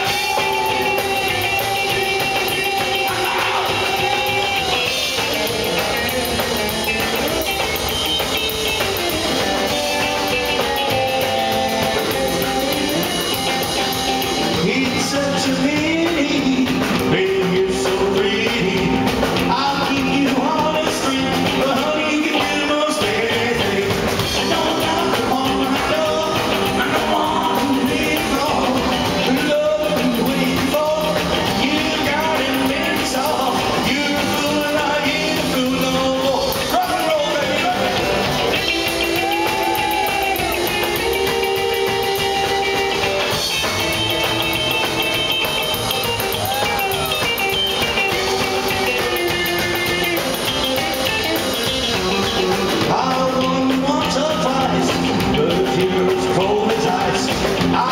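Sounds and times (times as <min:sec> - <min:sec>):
man singing: 0:00.0 - 0:09.0, 0:10.5 - 0:44.5, 0:46.5 - 0:57.9
bending lead guitar notes: 0:00.0 - 0:57.9
rockabilly band playing: 0:00.0 - 0:57.9.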